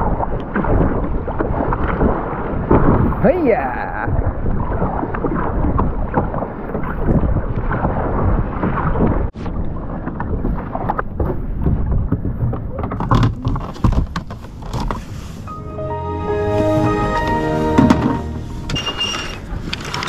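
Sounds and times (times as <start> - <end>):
wind buffeting microphone: 0.0 - 15.5
water rushing and splashing: 0.0 - 20.0.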